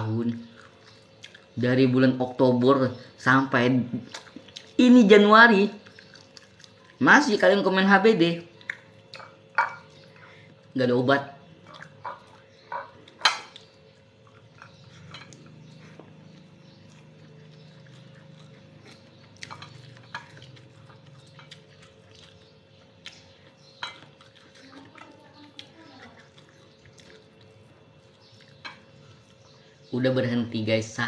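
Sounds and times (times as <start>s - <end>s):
faint steady hum: 0.0s - 31.0s
plate and dishes clinking: 9.2s - 9.9s.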